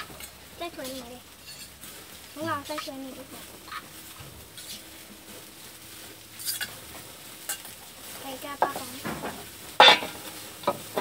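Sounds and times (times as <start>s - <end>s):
metal clinks: 1.4s - 1.8s.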